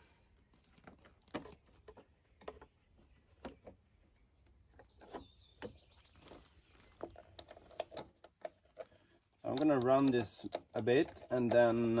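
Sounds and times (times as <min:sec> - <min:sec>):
faint plastic clicks and knocks: 0:04.7 - 0:12.0.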